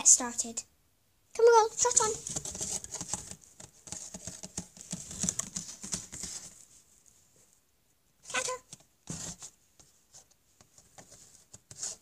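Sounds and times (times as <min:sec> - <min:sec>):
plastic toy tapping on cardboard: 0:01.9 - 0:06.3.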